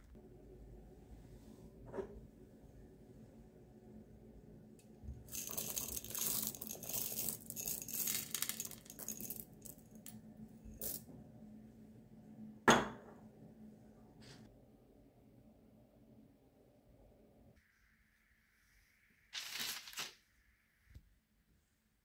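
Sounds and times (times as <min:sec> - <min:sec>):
chocolate chips rattling into bowl: 0:05.3 - 0:10.0.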